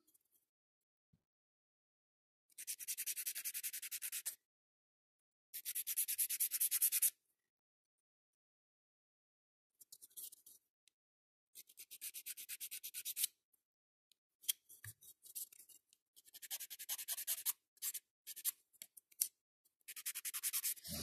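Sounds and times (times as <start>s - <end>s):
nail file rasping: 19.9s - 21.0s.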